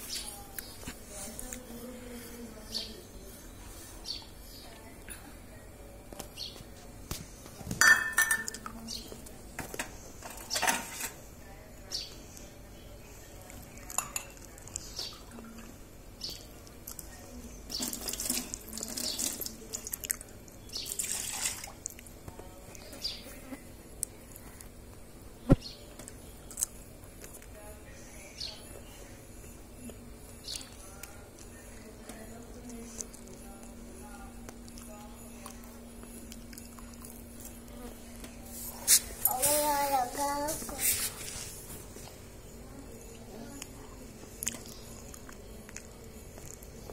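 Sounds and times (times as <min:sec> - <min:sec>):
steel dishes clinking: 0:07.8 - 0:08.6.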